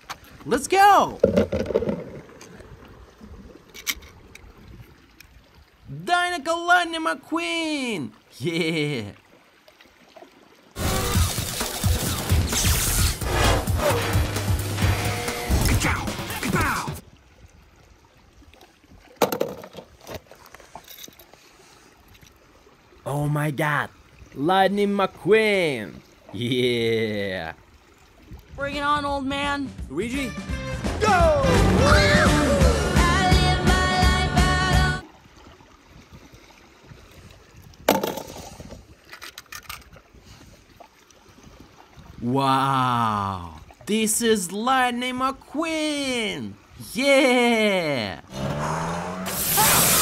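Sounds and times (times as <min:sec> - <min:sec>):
faint water: 0:00.0 - 0:13.0, 0:15.6 - 0:29.6, 0:31.2 - 0:50.0
sea water lapping: 0:19.9 - 0:28.6, 0:35.0 - 0:44.6.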